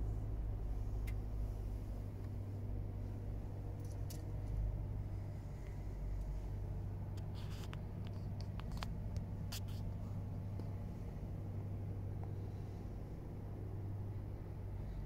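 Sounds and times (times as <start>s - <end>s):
car engine idling: 0.0s - 15.0s
light clicks and taps: 7.1s - 10.8s.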